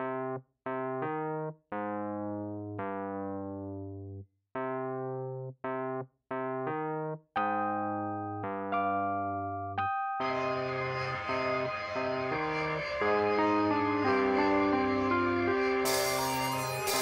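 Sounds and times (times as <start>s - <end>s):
electric piano chords: 6.7s - 17.0s.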